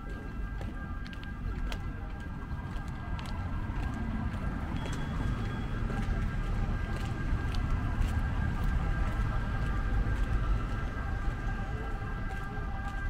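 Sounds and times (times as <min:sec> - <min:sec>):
low rumble of motor vehicles: 0:00.0 - 0:13.0.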